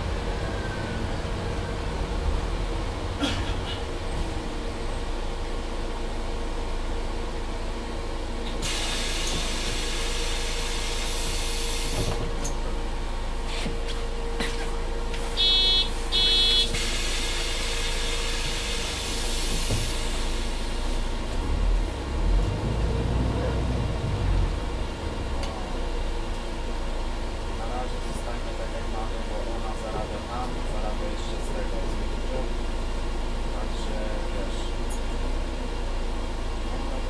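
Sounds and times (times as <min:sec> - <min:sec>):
bus interior hum: 0:00.0 - 0:37.0
short electronic beeps: 0:15.4 - 0:16.7.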